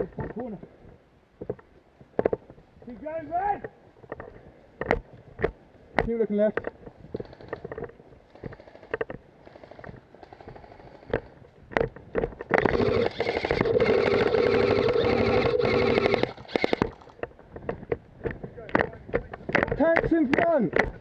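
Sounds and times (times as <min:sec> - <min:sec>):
airsoft rifle full-auto rattle: 0:07.1 - 0:11.4, 0:12.4 - 0:17.3
gearbox motor whine: 0:12.5 - 0:17.1.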